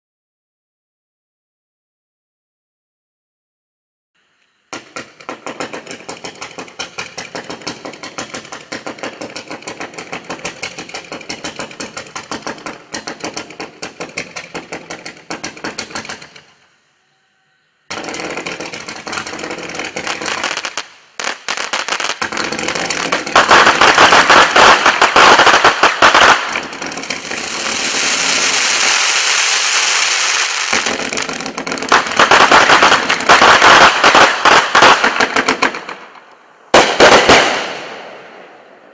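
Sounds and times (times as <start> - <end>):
fireworks cake firing: 4.7 - 16.6, 17.9 - 38.9.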